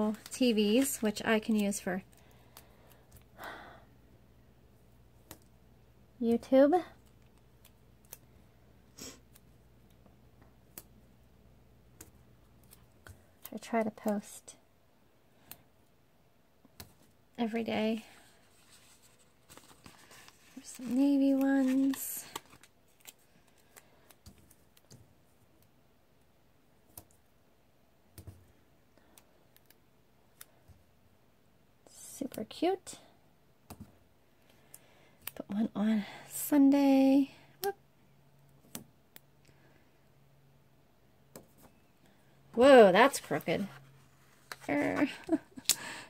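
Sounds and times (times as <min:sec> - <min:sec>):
stickers peeling and crinkling: 0:00.0 - 0:03.3, 0:18.2 - 0:25.0.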